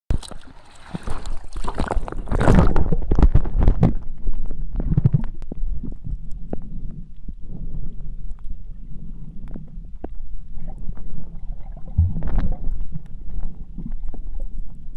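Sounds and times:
water sloshing and splashing: 0.1 - 5.3, 10.6 - 14.8
muffled underwater rumbling: 0.1 - 14.9.

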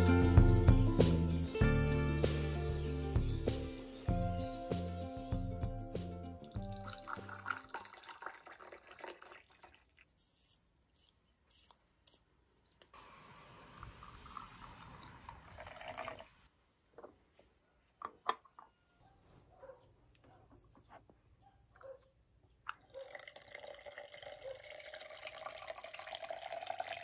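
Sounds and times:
hot water pouring into pitcher: 6.6 - 10.2, 12.9 - 16.5, 22.9 - 27.0.

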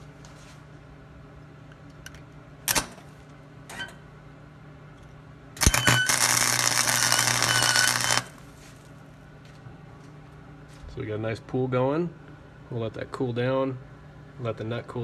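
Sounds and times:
welding arc sputters: 5.6 - 8.5
welding arc crackling: 5.6 - 8.6.

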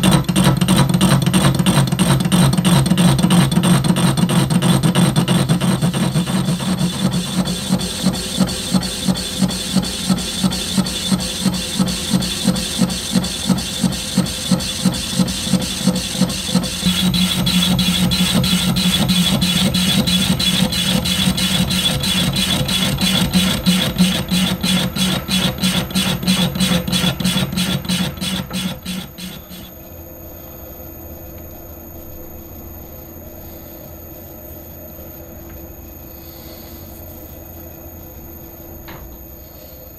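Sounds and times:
metal lathe cutting: 0.3 - 29.7.

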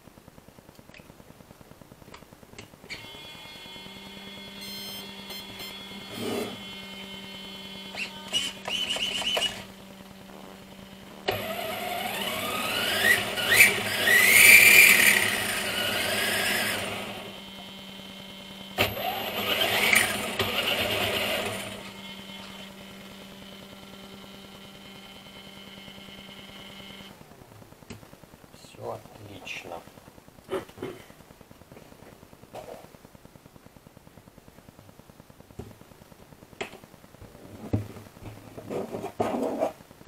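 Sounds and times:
electric motor revving and whining: 3.3 - 9.8, 11.3 - 17.8, 18.8 - 23.9.

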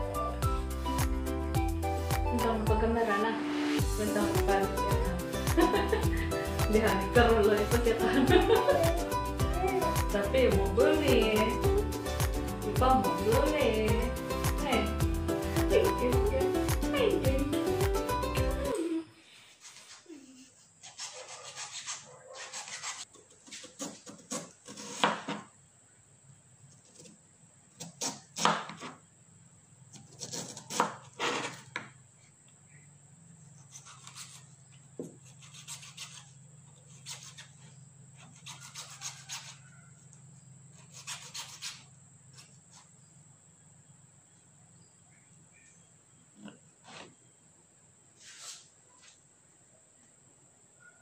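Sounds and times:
knife cutting on plastic board: 20.8 - 25.5, 30.0 - 31.9, 33.7 - 39.6, 40.8 - 42.9.

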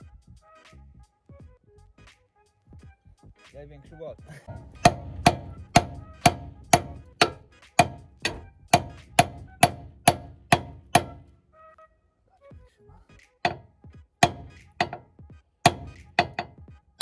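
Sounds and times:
hammer striking metal: 4.4 - 11.3, 13.4 - 15.1, 15.7 - 16.6.

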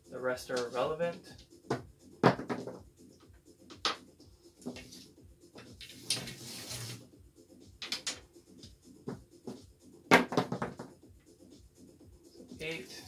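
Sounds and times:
dice clattering: 7.8 - 8.2
stick pushing dice clicks: 7.8 - 8.2.

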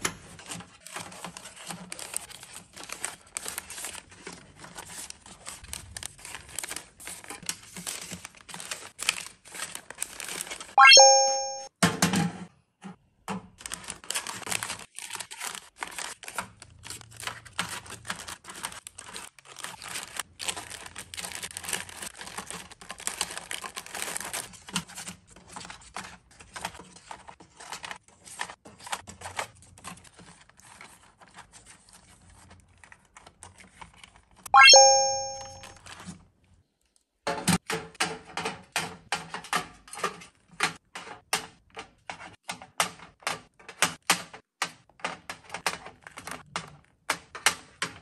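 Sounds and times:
plastic sachets crinkling: 1.3 - 10.7, 13.6 - 24.5.

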